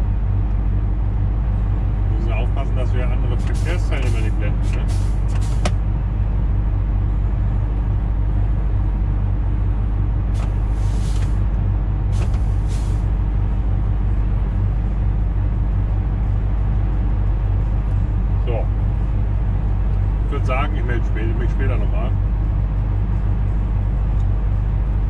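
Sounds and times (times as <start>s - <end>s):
truck engine droning: 0.0s - 25.0s
short bursts of hiss: 10.4s - 11.4s.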